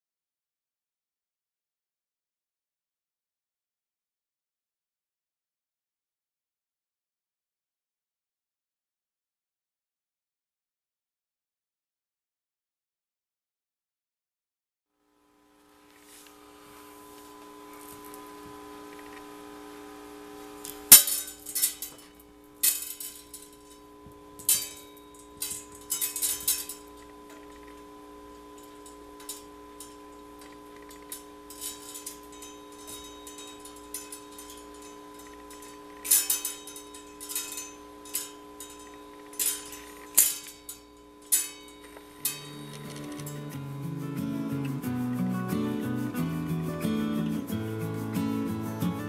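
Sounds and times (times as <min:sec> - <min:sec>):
steady hum: 0:15.2 - 0:49.0
bead necklace clattering: 0:24.4 - 0:27.8, 0:28.6 - 0:43.5.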